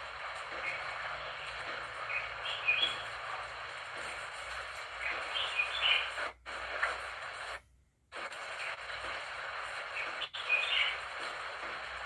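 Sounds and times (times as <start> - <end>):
steady hiss: 0.0 - 12.0
birds chirping: 0.5 - 3.2, 5.0 - 6.2, 9.9 - 11.1.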